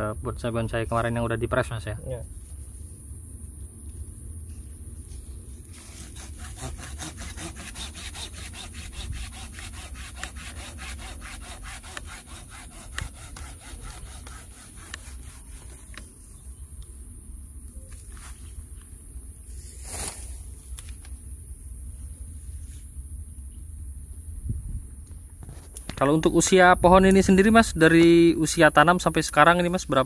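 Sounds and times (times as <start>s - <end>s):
hand saw cutting branch: 5.6s - 16.1s.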